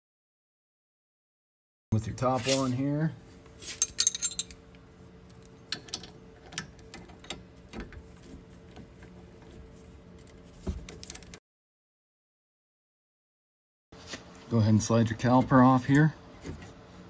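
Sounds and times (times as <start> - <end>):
faint steady hum: 2.0 - 11.4
wrenches clinking on metal: 3.7 - 4.6.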